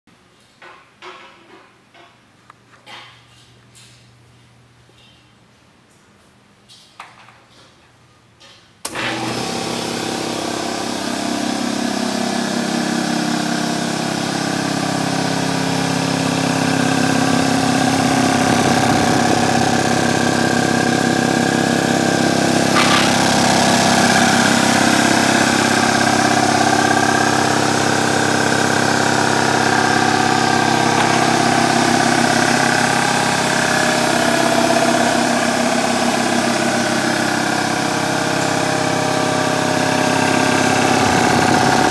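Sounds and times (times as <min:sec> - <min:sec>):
electric air compressor running: 0:08.8 - 0:41.9.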